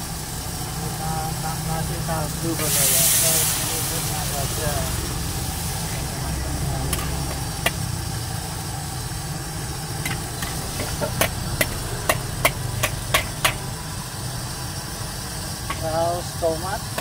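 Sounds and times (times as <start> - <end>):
metal ladle clanking on wok: 6.9 - 7.8, 10.0 - 13.7.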